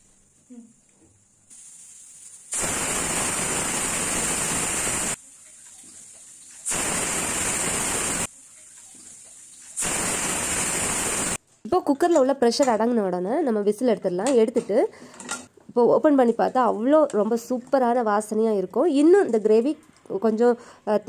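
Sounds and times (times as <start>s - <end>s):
soft steady steam hiss: 0.0s - 11.4s.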